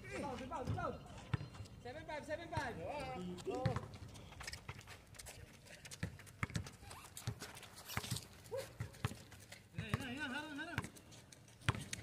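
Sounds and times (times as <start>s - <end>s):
players' footsteps: 0.1s - 12.0s
basketball bouncing on concrete: 0.5s - 1.6s, 2.4s - 4.9s, 5.9s - 11.0s, 11.6s - 12.0s.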